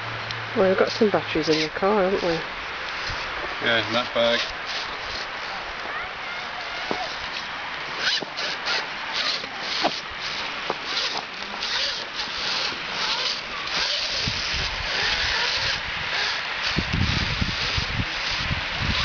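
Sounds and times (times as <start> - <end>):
electric motor whirring: 6.6 - 19.0.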